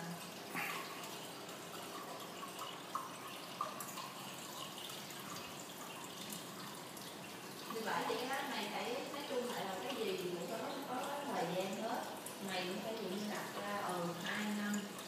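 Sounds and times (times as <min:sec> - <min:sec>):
aquarium water trickling: 0:00.0 - 0:15.0
water drips and splashes: 0:00.0 - 0:15.0.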